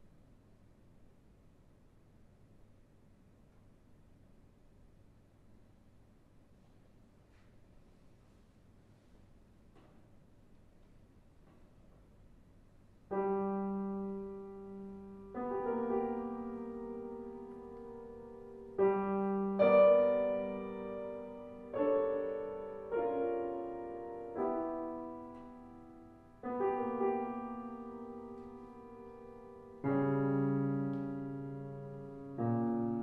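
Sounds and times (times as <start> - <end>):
piano chords ringing: 13.1 - 33.0.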